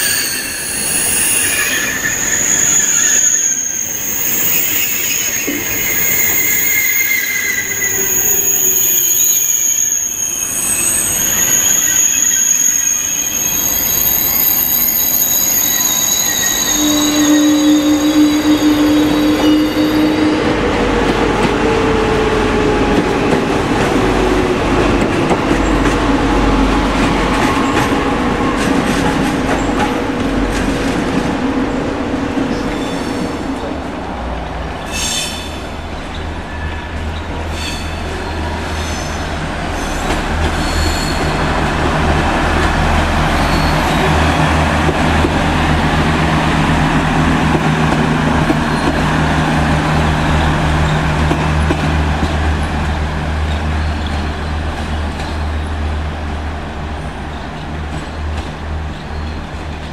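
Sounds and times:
high wheel squeals: 0.0 - 20.9, 34.8 - 42.0, 42.7 - 46.9
low train hum: 0.0 - 59.9.

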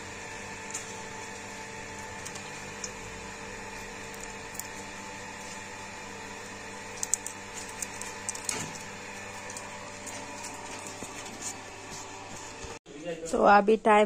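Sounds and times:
machine hum: 0.0 - 12.8.

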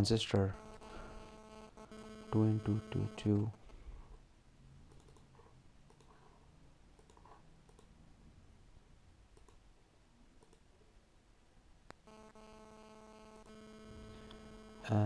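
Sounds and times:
faint mouse clicks: 4.9 - 6.3, 7.0 - 7.9, 9.3 - 9.6, 10.4 - 10.7.

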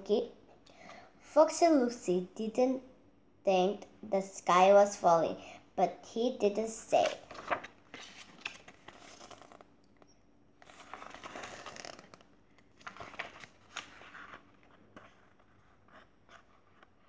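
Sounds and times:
book pages rustling: 7.0 - 17.0.

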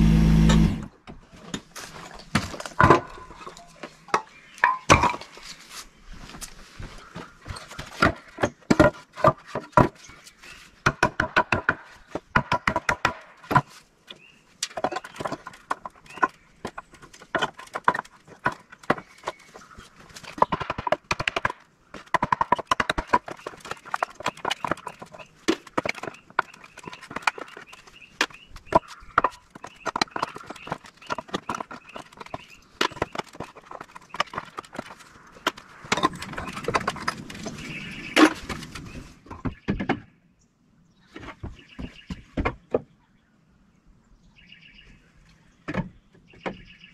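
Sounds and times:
hammer striking wood and nails: 10.8 - 13.7, 20.2 - 37.0.

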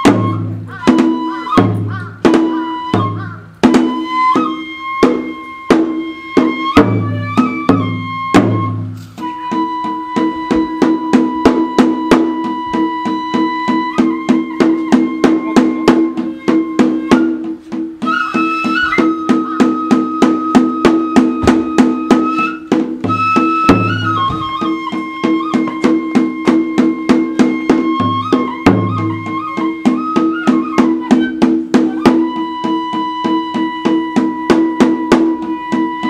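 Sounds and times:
flute long held notes: 2.4 - 3.2, 3.8 - 17.4, 18.0 - 36.0
fast drum beat: 19.0 - 32.8.

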